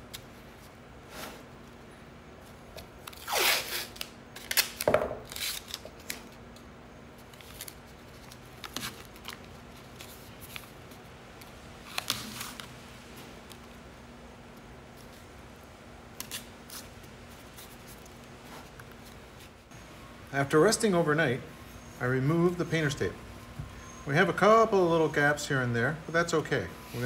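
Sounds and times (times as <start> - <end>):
tape handling: 2.5 - 13.8, 16.1 - 19.5
tape ripping off roll: 3.0 - 6.2.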